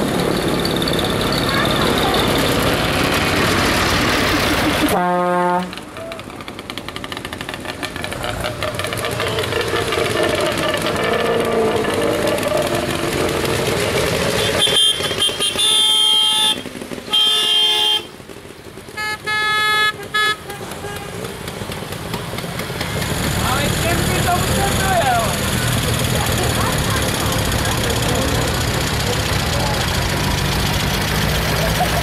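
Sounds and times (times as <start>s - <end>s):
tractor engines running: 0.0s - 32.0s
vehicle horn blasts: 4.8s - 5.8s, 14.4s - 18.2s, 18.9s - 21.3s.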